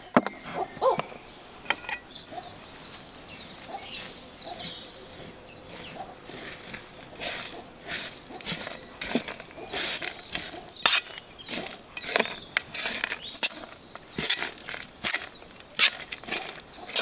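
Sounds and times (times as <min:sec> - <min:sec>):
small birds chirping: 0:00.0 - 0:17.0
spoon scraping metal tray: 0:07.2 - 0:17.0.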